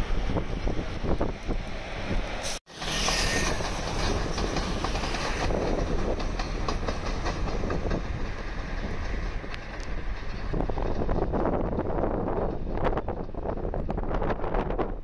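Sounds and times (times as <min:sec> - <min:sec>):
train rumbling over tracks: 0:00.0 - 0:15.0
wheels clacking over rail joints: 0:02.7 - 0:13.7.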